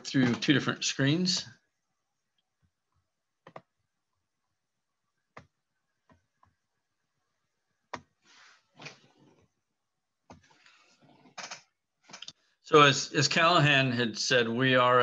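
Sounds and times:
computer mouse clicks: 0:03.4 - 0:03.7, 0:11.2 - 0:12.4.

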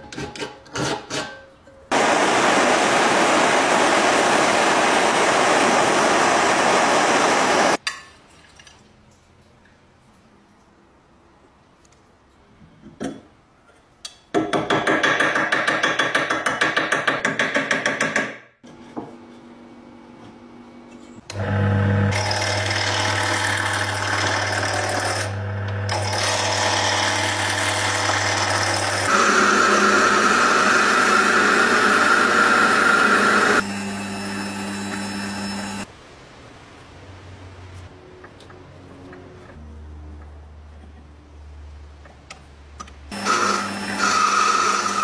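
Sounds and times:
tool cutting spinning wood: 0:01.9 - 0:07.8, 0:21.3 - 0:35.8, 0:43.1 - 0:45.0
drill bit boring wood: 0:21.3 - 0:35.8, 0:43.1 - 0:45.0
wood lathe motor humming: 0:21.3 - 0:35.8, 0:43.1 - 0:45.0.

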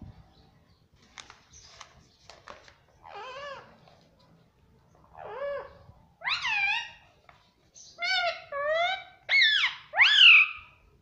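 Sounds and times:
parrot calls: 0:06.2 - 0:07.0, 0:08.0 - 0:10.8.

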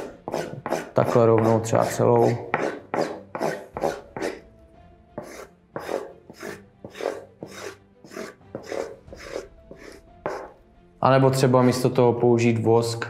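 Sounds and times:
puck rubbing on stick tape: 0:00.0 - 0:04.4, 0:05.2 - 0:10.6.

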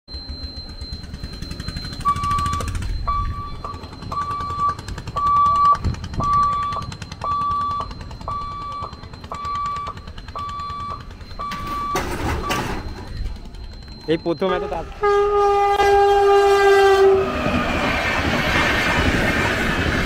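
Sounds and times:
level crossing warning beeps: 0:00.1 - 0:15.8.

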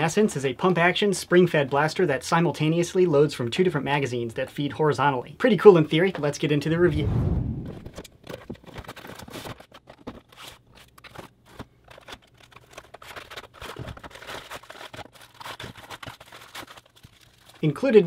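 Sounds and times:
scissors snipping packaging: 0:08.3 - 0:17.6.

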